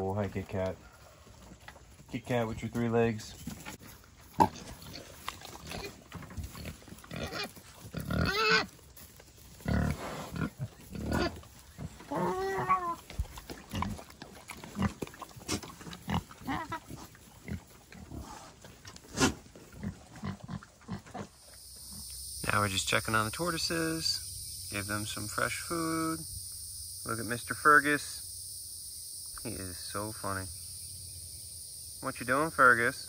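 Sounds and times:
pigs grunting: 0.0 - 8.8, 9.6 - 21.4
pig high call: 7.2 - 8.7, 12.0 - 13.1, 16.4 - 17.0.

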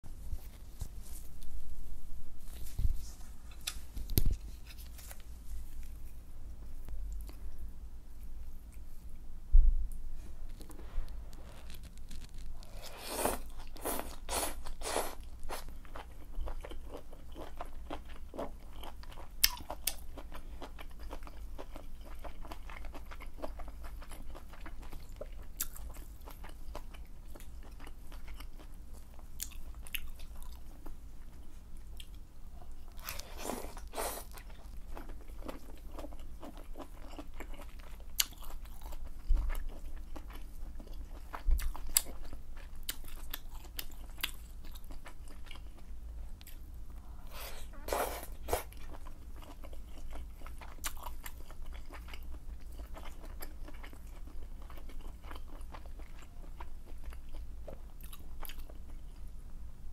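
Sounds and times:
wet chewing and mouth sounds: 10.5 - 59.2.

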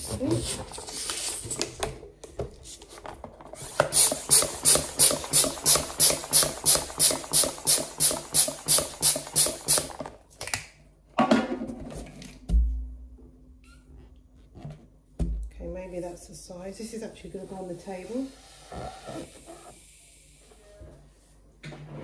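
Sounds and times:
balloon pump hissing strokes: 3.6 - 10.0, 18.3 - 20.5
balloon rubbing: 18.4 - 19.8.

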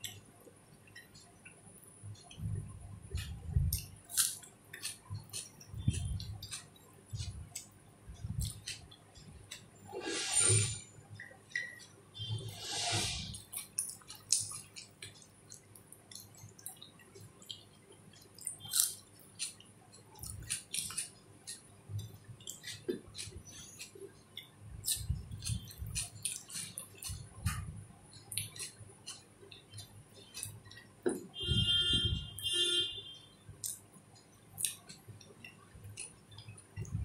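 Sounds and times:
chewing: 0.0 - 10.0, 13.3 - 30.9, 33.6 - 37.0
fingers squishing wet food: 13.4 - 31.3.

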